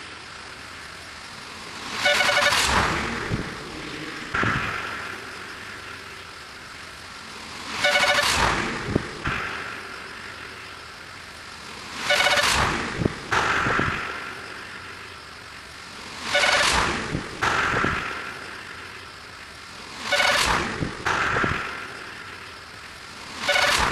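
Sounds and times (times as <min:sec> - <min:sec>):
horn-like toot: 0:02.0 - 0:02.7, 0:07.8 - 0:08.4.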